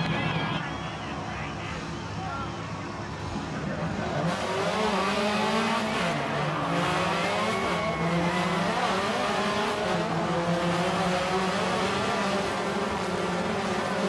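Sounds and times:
car engine revving hard: 0:04.1 - 0:14.0.

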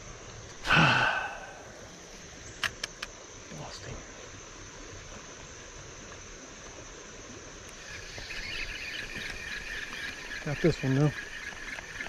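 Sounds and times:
outdoor background hiss: 0:00.0 - 0:12.0
fishing reel whirring: 0:07.7 - 0:12.0.

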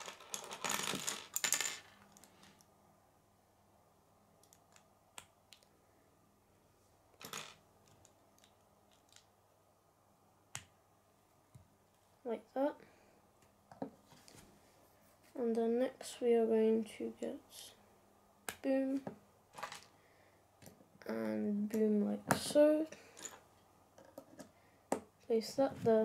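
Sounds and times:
plastic pieces rattling: 0:00.0 - 0:02.4
plastic pieces clicking: 0:07.2 - 0:09.3.

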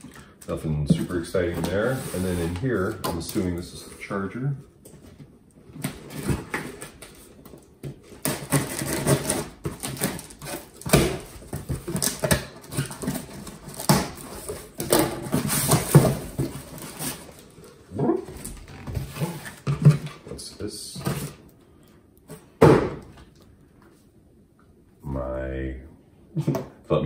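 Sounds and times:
cardboard boxes scraping: 0:01.0 - 0:02.9, 0:18.4 - 0:20.1.

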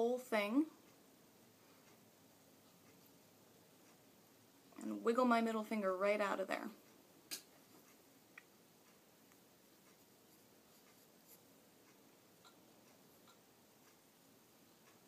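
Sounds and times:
soft ticks: 0:00.8 - 0:01.0, 0:01.6 - 0:04.9, 0:06.6 - 0:15.0
faint rustling of yarn: 0:08.8 - 0:14.0.

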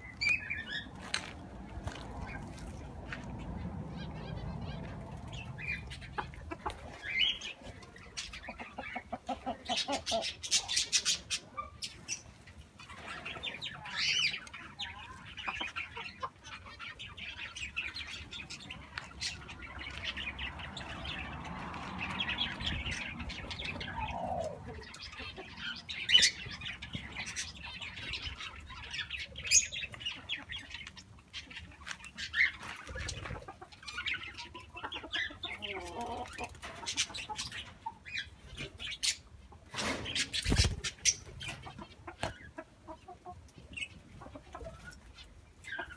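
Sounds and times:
chickens clucking: 0:00.0 - 0:45.9
small birds chirping: 0:00.0 - 0:45.9
wings flapping: 0:39.8 - 0:41.0.

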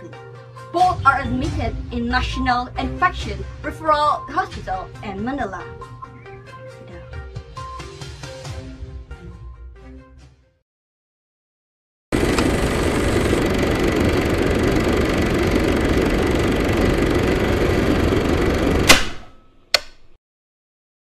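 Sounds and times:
loud steady rumbling: 0:12.2 - 0:19.2
sharp click: 0:18.8 - 0:20.2.

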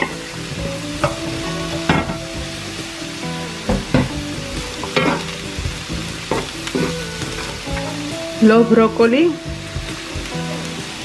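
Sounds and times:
eggplant sizzling in oil: 0:00.0 - 0:11.0
wooden spoon knocking pan: 0:03.6 - 0:07.7.

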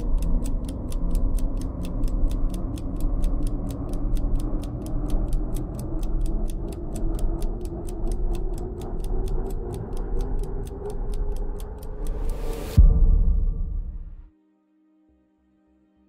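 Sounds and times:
fast even ticking: 0:00.0 - 0:12.8.

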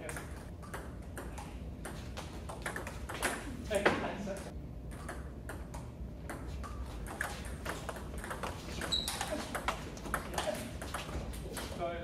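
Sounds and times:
table tennis ball clicking: 0:04.9 - 0:11.8
short high squeak: 0:08.8 - 0:09.3.

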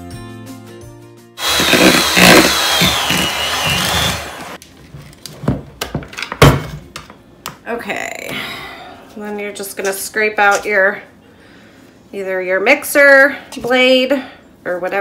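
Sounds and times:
electric hand mixer whining: 0:01.4 - 0:04.6.

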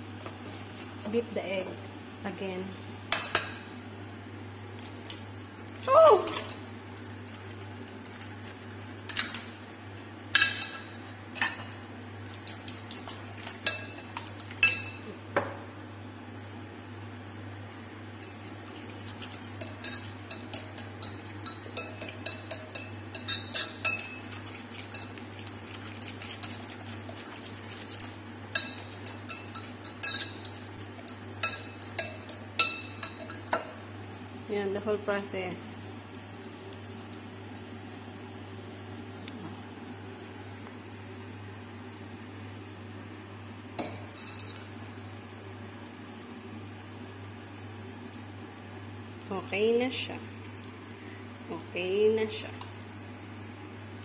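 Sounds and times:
spoon clinking against glass bowl: 0:13.6 - 0:15.1, 0:19.6 - 0:25.2, 0:28.5 - 0:30.5.

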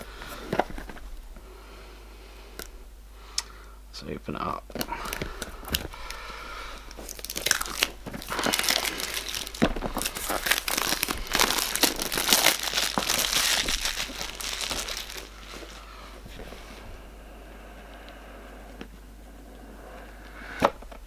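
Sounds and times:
plastic wrap crinkling: 0:04.7 - 0:16.6.

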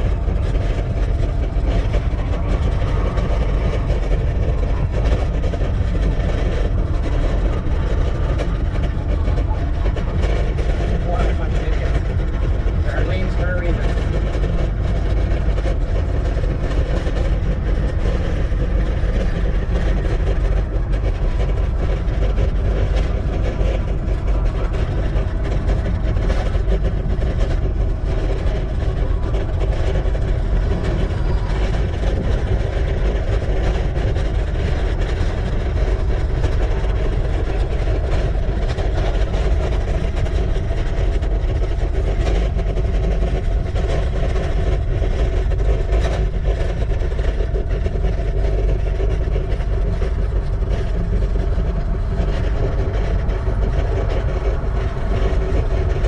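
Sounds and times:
wind buffeting microphone: 0:00.0 - 0:56.0.

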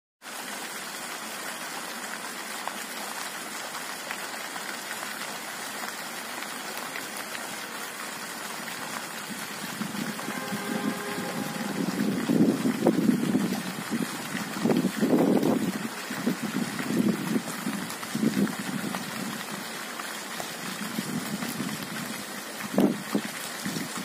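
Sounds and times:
fountain water splashing: 0:00.2 - 0:24.0
low rumble: 0:09.7 - 0:13.9.

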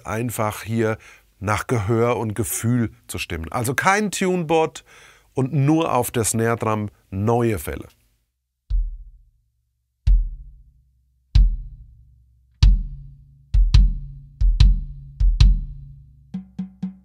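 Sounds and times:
low drums struck: 0:08.7 - 0:09.2, 0:12.6 - 0:17.0.

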